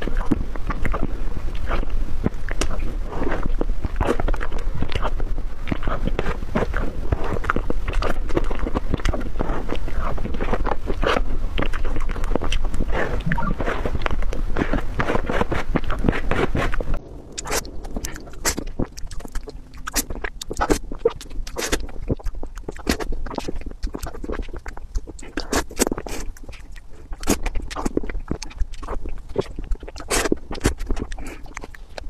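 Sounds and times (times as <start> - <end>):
lip smacks and tongue clicks: 0.0 - 32.0
wet mouth eating sounds: 0.0 - 32.0.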